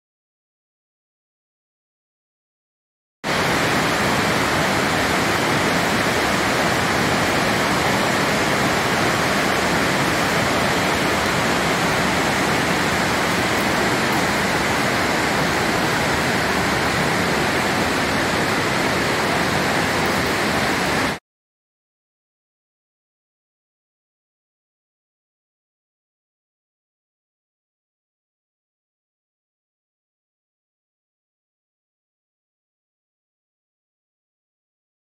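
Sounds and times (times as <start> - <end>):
water rushing in cave: 3.3 - 21.2.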